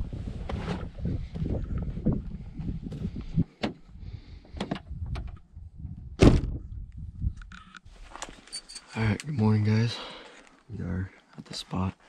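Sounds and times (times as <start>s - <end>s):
heavy thump: 6.2s - 6.7s.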